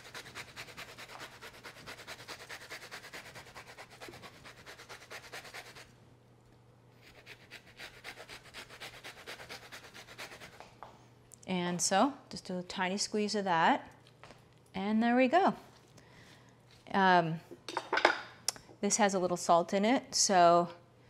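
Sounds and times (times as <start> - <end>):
lemon rind grating: 0.0 - 5.9.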